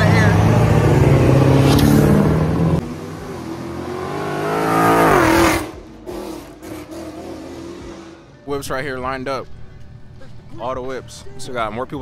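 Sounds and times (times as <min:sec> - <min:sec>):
car engine accelerating: 0:00.0 - 0:08.4.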